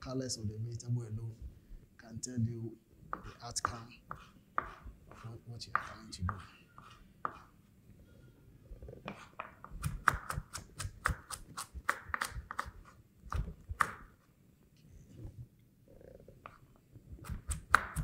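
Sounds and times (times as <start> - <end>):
knife chopping on cutting board: 3.1 - 7.5, 9.1 - 14.1, 17.2 - 18.0.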